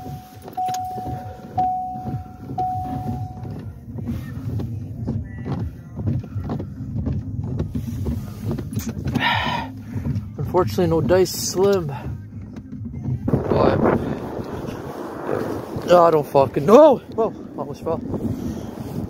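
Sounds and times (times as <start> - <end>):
car reverse warning beep: 0.0 - 3.7
car engine rumbling: 0.0 - 19.0.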